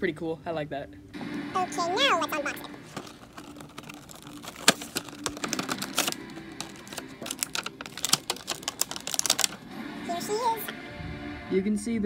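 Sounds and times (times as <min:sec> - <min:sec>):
plastic packaging crackling: 0:02.6 - 0:09.7.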